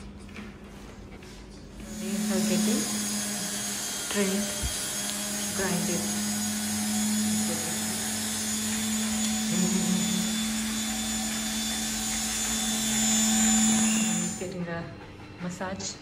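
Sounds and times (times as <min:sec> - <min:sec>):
nail grinder motor humming: 0:01.8 - 0:14.5.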